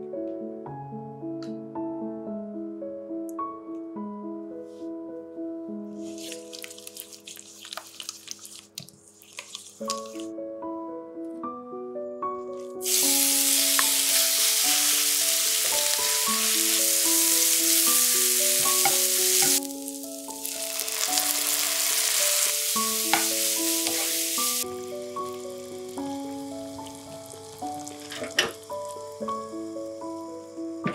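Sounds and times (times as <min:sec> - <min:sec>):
soft melodic background music: 0:00.0 - 0:30.9
spatula stirring: 0:06.0 - 0:10.3, 0:20.4 - 0:24.6
beef sizzling in frying pan: 0:06.1 - 0:10.2, 0:12.8 - 0:30.9.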